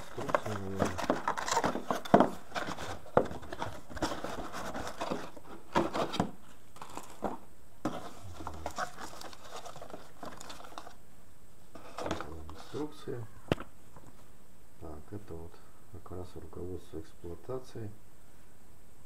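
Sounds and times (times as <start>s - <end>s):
packaging rustling and crinkling: 0.0s - 11.0s
cardboard taps and knocks: 0.1s - 6.4s.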